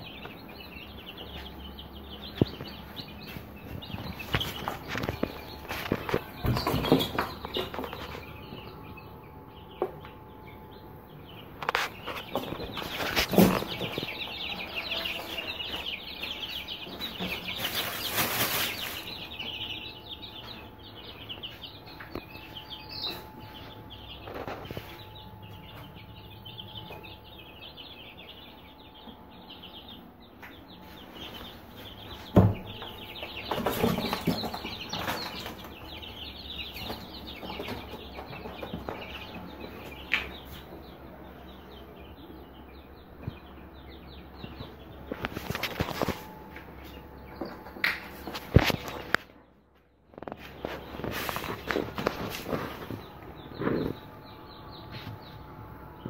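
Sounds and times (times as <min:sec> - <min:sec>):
chicks peeping: 0:00.0 - 0:56.0
handling knocks and rustles: 0:00.3 - 0:08.7, 0:11.6 - 0:23.5, 0:30.4 - 0:40.7, 0:50.1 - 0:54.0.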